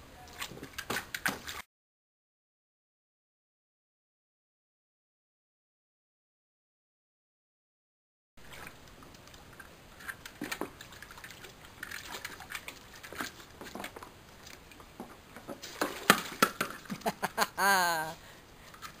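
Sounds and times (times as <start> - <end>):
water splashing in a paddling pool: 8.4 - 17.2.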